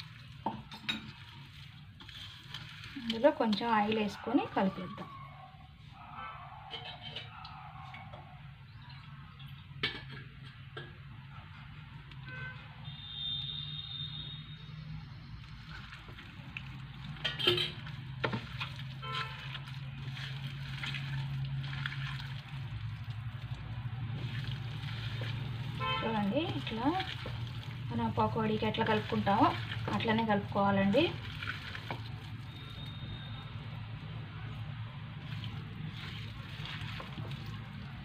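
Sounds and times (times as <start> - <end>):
hand squelching in wet coating: 1.1 - 5.0, 17.8 - 28.0, 28.6 - 33.0, 35.2 - 38.0.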